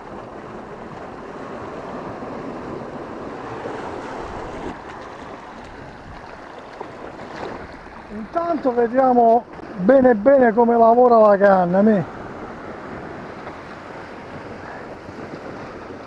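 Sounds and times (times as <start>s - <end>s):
waves washing over rocks: 0.0s - 16.0s.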